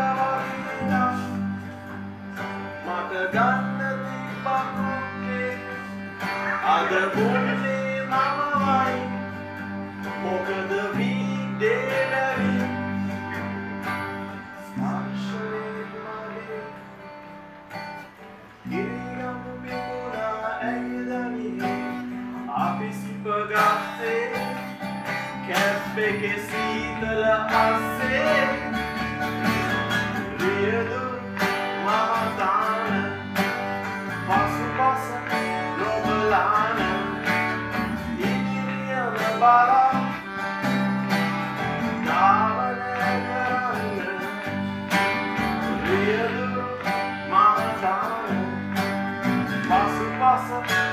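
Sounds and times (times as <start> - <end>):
man singing: 0.0 - 17.1, 18.6 - 50.9
acoustic guitar strummed: 0.0 - 50.9
bass: 0.0 - 50.9
harmonium chords: 0.0 - 50.9.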